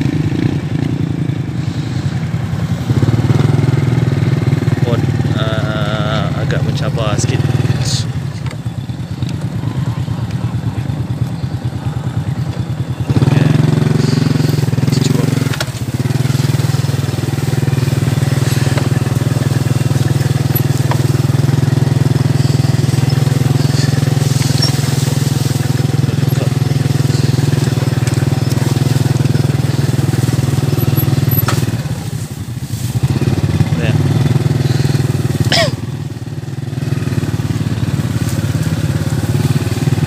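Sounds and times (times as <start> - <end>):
motorcycle engine running: 0.0 - 40.0.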